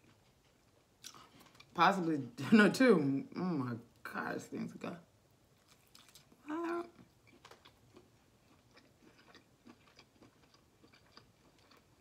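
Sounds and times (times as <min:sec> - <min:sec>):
close chewing with wet clicks: 0:05.6 - 0:12.0.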